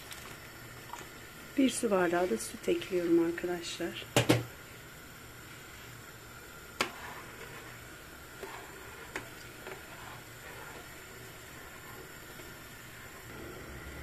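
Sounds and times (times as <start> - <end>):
steady low hum: 0.4 - 14.0
spoon stirring in metal pot: 6.8 - 13.3.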